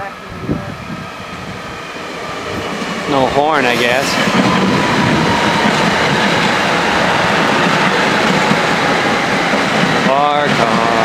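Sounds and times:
train wheels rushing on rails: 0.0 - 11.0
clickety-clack over rail joints: 2.4 - 11.0.

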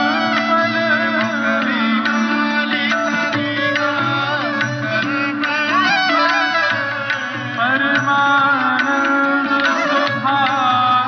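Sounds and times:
person singing devotional song: 0.0 - 11.0
steady percussion beat: 0.0 - 11.0.

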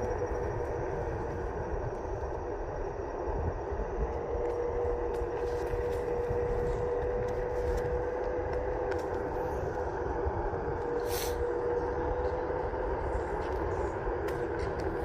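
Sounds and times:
short hiss: 11.0 - 11.4.

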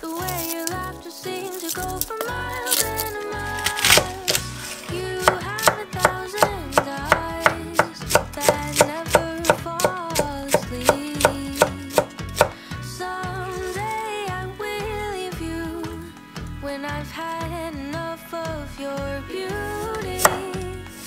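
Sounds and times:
knife chopping cabbage on wooden board: 3.7 - 4.4, 5.2 - 12.6, 20.2 - 20.6.

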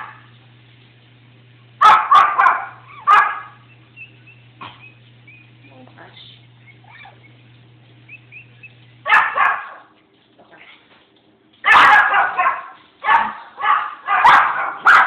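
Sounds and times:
puppies squeaking and crying: 2.8 - 5.8, 6.5 - 9.4.

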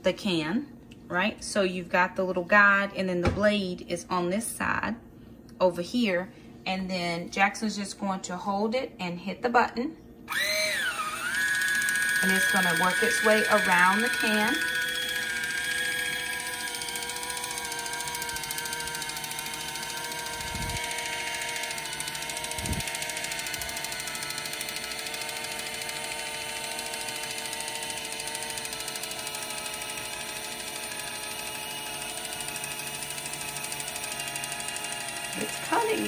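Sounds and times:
electric can opener whining: 10.3 - 36.0.

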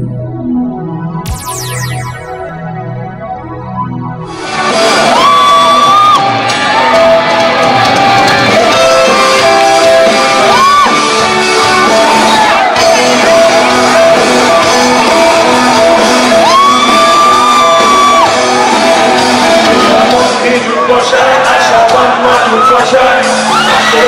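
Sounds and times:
live rock band playing: 4.3 - 20.6.

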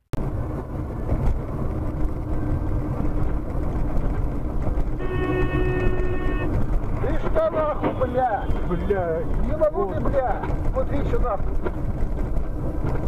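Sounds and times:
car road and engine rumble: 0.1 - 13.0
car horn held: 5.0 - 6.6.

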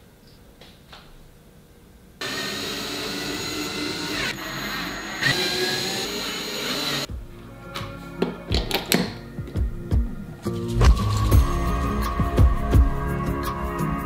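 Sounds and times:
cordless drill drilling into wall: 2.2 - 7.1.

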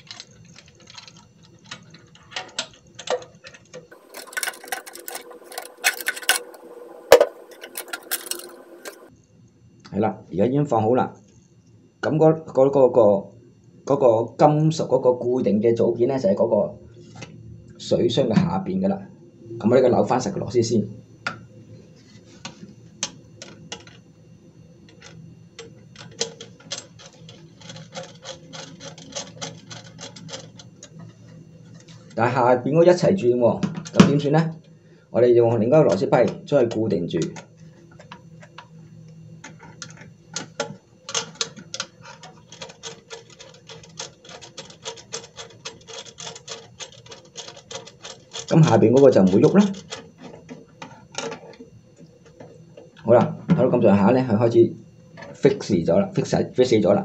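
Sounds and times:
plastic valve clicking and scraping: 0.0 - 9.1.

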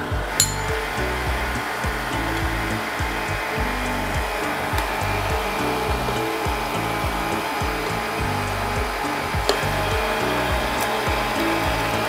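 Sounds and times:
background music: 0.0 - 12.0
stand mixer running: 0.0 - 12.0.

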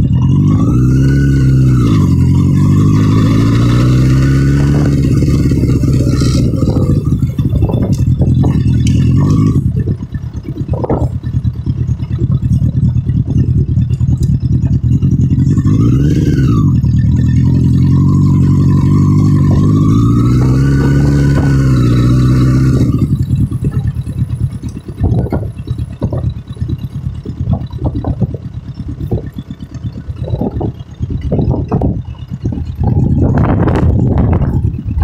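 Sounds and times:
motorcycle engine revving: 0.0 - 35.0
wind rush: 4.6 - 10.0, 30.2 - 35.0.

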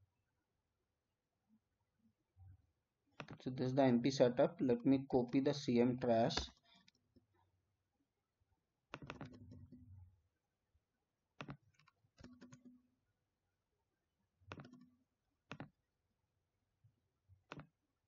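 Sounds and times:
mouse and keyboard clicking: 9.0 - 9.6, 14.5 - 14.9.

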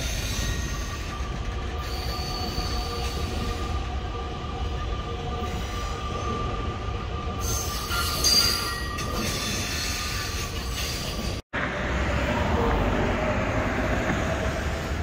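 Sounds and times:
train wheels squealing on rails: 0.0 - 4.2, 5.2 - 11.4
train low rumble: 0.0 - 15.0.

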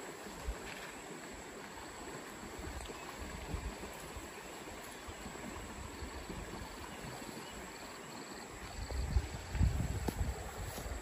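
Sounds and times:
wind rumbling on microphone: 2.4 - 4.4, 8.5 - 11.0
tree leaves and branches rustling: 8.4 - 11.0.

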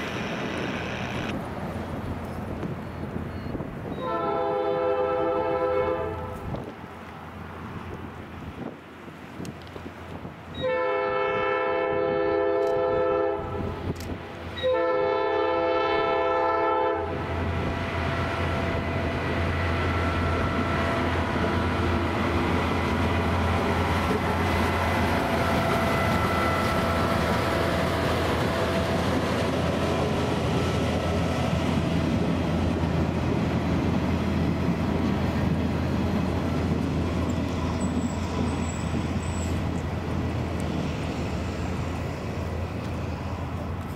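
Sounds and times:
train rumbling along rails: 0.0 - 43.9
air horn blasts: 4.0 - 6.4, 10.6 - 13.7, 14.6 - 17.2.

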